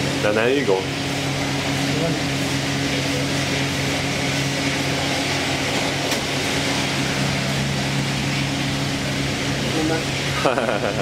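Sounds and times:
low machinery hum: 0.0s - 11.0s.

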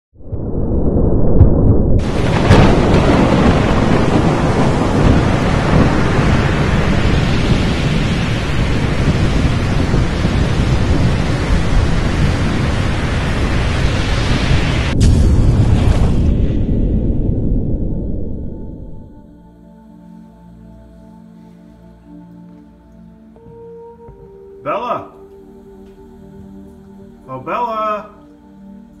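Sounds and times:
low rumbling thunder: 0.2s - 19.4s
sharp thunder crack: 0.9s - 19.3s
heavy rain: 2.0s - 19.2s.

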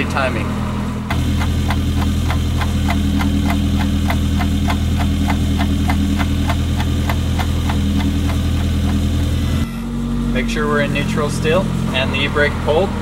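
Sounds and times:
car engine idling: 0.0s - 13.0s
light even engine ticking: 1.1s - 9.6s.

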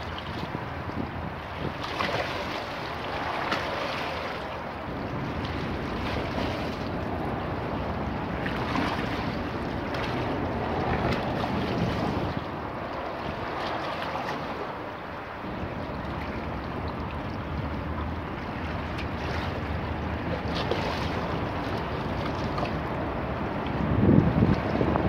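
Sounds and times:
wind buffeting microphone: 0.0s - 25.0s
water splashing against steps: 1.7s - 14.8s.

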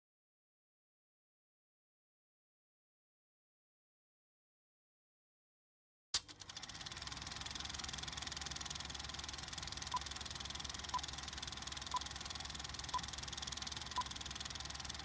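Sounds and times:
machine running: 6.2s - 15.0s.

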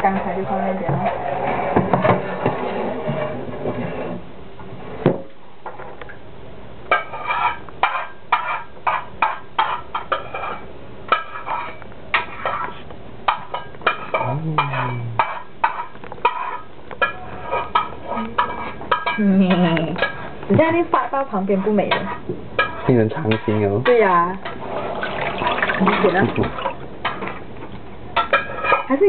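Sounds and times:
dishes and utensils clinking: 6.9s - 27.4s, 28.2s - 29.0s.

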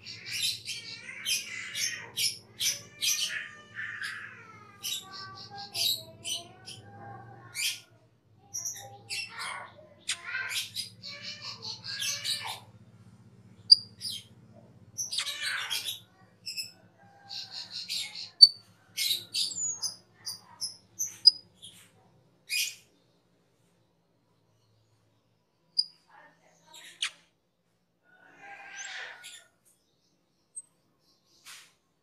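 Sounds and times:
starling singing: 0.0s - 7.9s, 8.5s - 12.7s, 13.6s - 14.3s, 15.0s - 21.4s.

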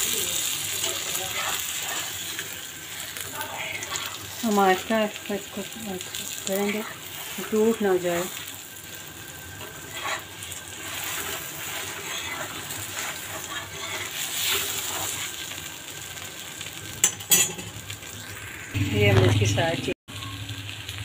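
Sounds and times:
flatbread sizzling in oil: 0.0s - 21.0s
scraping against a pan: 0.8s - 4.8s, 6.4s - 8.5s, 9.6s - 15.5s.

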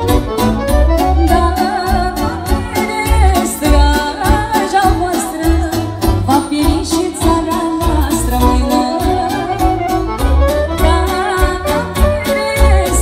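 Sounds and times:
clarinet melody: 0.0s - 2.8s, 8.7s - 13.0s
woman singing: 1.1s - 10.0s, 10.7s - 13.0s.

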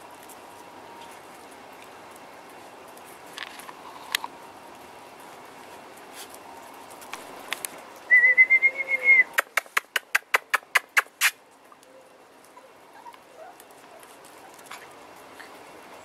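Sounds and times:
sharp clicks: 9.3s - 11.4s.

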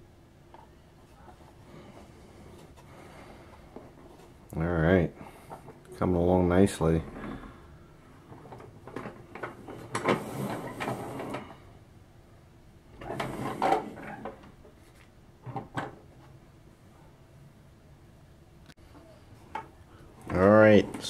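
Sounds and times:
plastic toy scraping on table: 9.6s - 11.5s, 13.0s - 14.4s.

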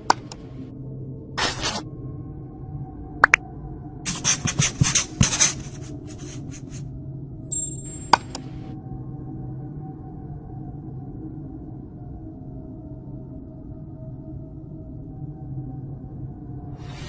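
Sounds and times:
soft background music: 0.0s - 17.0s
marker scribbling on whiteboard: 4.1s - 6.8s.

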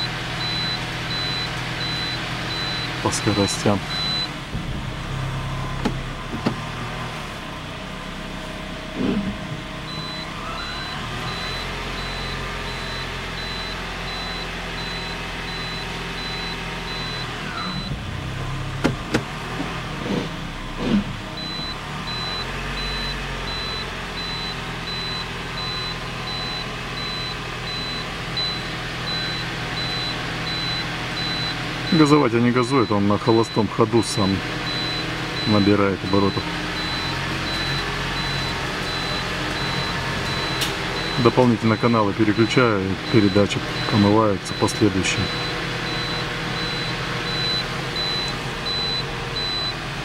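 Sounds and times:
car engine idling: 0.0s - 50.0s
rapid high beeping: 9.9s - 17.9s, 21.4s - 49.8s
transmission whine: 20.2s - 49.8s.

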